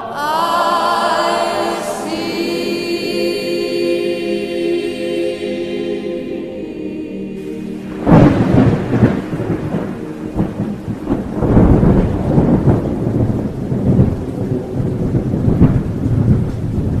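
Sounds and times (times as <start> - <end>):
steady rain: 7.4 - 17.0
thunder rumbling: 7.4 - 17.0.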